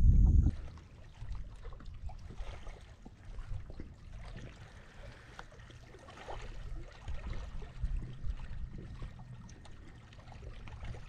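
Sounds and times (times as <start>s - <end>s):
low rumble: 0.0s - 1.4s
small waves lapping against hull: 0.0s - 11.0s
light splashes and drips: 0.4s - 11.0s.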